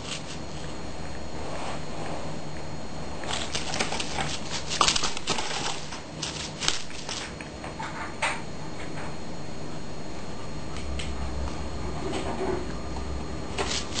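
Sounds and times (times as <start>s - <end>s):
cat pawing a string toy: 3.2s - 7.4s, 13.5s - 14.0s.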